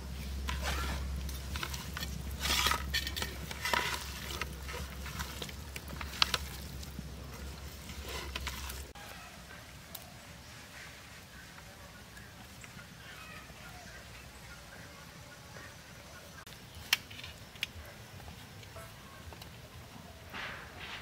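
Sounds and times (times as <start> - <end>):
hands squelching wet food: 0.0 - 9.0
outdoor background: 0.0 - 21.0.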